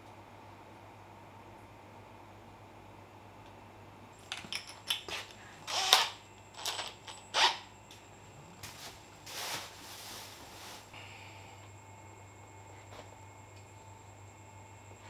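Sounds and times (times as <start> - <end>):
cordless drill handling clicks: 5.7 - 7.5.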